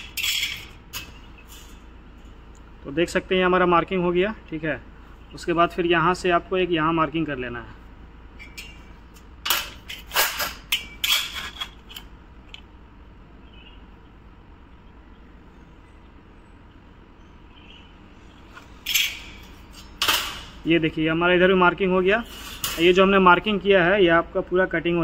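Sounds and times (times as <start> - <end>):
metallic clatters: 0.0 - 2.4, 8.4 - 12.7, 18.5 - 20.7.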